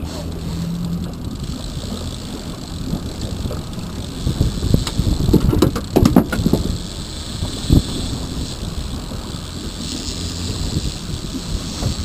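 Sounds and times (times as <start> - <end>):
boat motor rumbling: 0.0 - 12.0
wind on microphone: 0.0 - 12.0
irregular knocks and thumps: 5.3 - 6.7.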